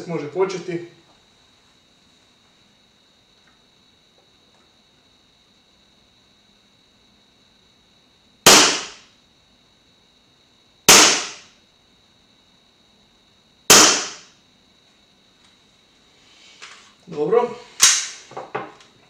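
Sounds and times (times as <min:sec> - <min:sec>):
airsoft pistol shots: 0:08.5 - 0:09.1, 0:10.9 - 0:11.5, 0:13.7 - 0:14.3, 0:17.8 - 0:18.2.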